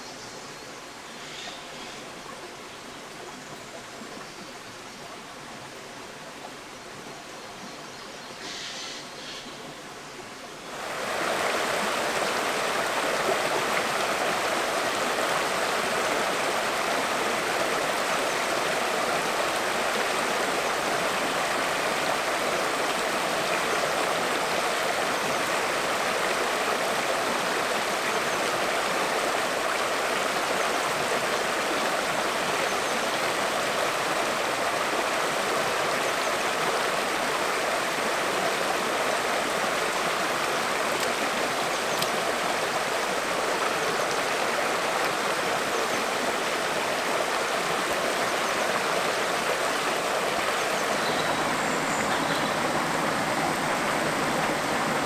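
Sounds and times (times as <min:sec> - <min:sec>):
stream water rushing: 0:00.0 - 0:55.0.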